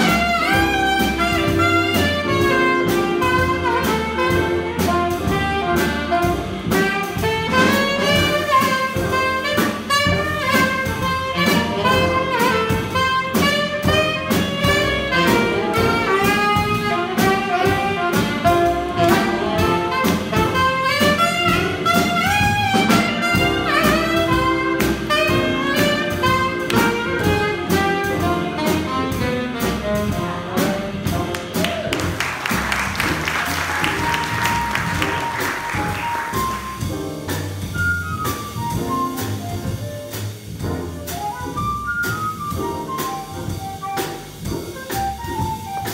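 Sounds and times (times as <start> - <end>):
alto saxophone solo: 0.0 - 36.9
jazz combo playing blues: 0.0 - 45.9
audience applause: 31.3 - 36.8.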